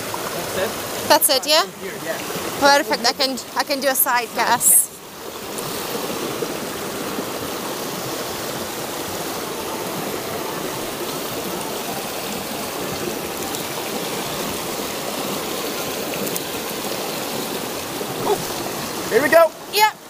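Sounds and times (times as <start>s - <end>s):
river rushing over boulders: 0.0s - 20.0s.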